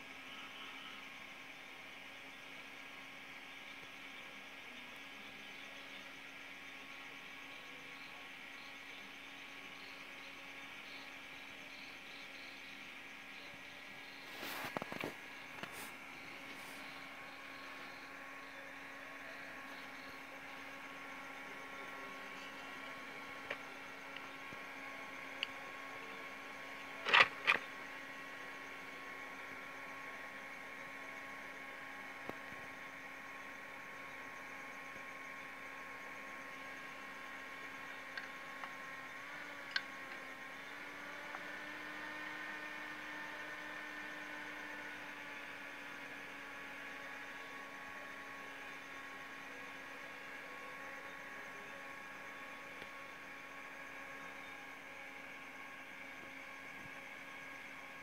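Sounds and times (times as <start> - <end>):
electrical hum: 0.0 - 58.0
sharp clicks: 27.0 - 27.7.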